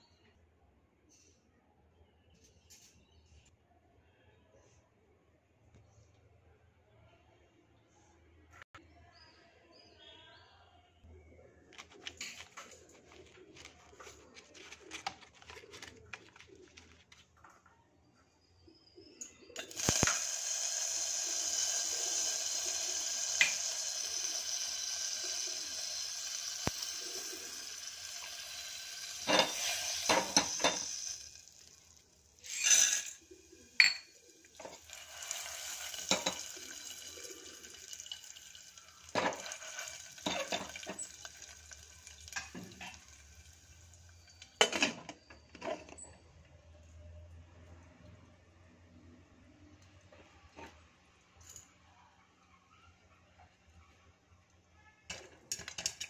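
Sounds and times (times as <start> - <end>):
oil sizzling in a pan: 19.6 - 44.7
metal pan and lid clanking: 29.2 - 31.2, 32.5 - 33.2.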